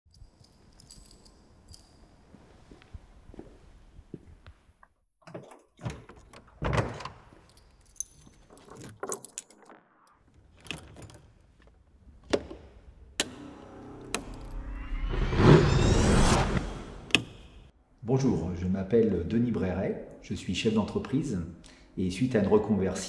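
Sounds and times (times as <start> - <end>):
keys jangling: 0.1 - 2.4, 7.3 - 9.6.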